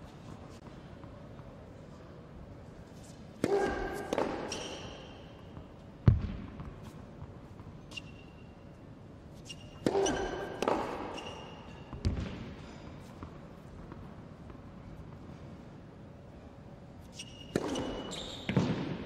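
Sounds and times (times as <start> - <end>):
tennis ball bouncing: 3.4 - 8.0, 9.8 - 12.5
sneakers squeaking on court: 3.5 - 5.7, 7.7 - 8.6, 9.4 - 12.8, 17.1 - 19.0.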